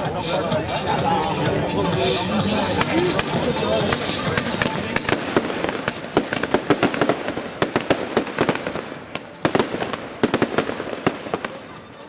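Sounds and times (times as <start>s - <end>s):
fireworks bangs and crackling pops: 2.7s - 11.8s.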